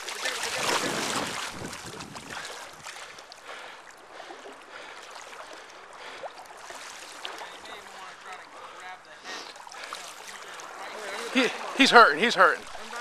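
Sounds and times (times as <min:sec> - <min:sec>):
river water babbling: 0:00.0 - 0:13.0.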